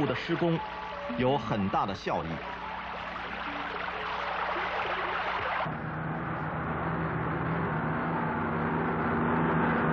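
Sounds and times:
machine drone: 0.0 - 9.9
water gushing from pipe: 2.2 - 5.7.

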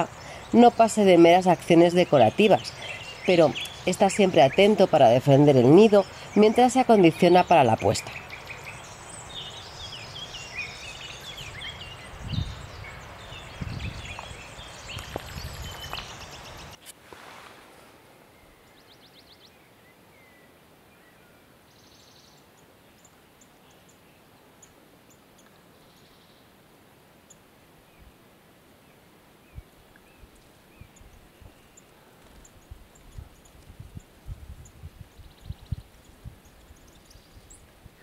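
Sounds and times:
birds chirping and singing: 0.0 - 16.8, 29.5 - 38.0.

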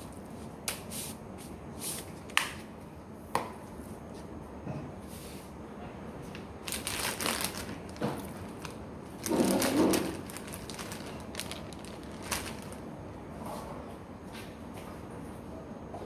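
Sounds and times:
plastic bag crinkling: 6.6 - 12.9.

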